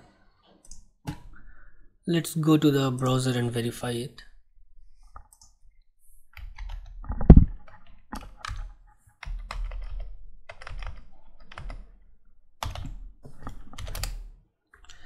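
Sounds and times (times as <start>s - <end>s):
typing on a computer keyboard: 6.3s - 12.0s, 12.6s - 14.3s.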